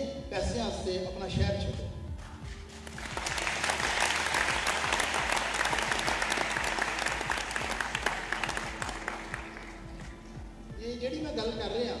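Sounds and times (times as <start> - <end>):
audience applauding: 2.8 - 10.1.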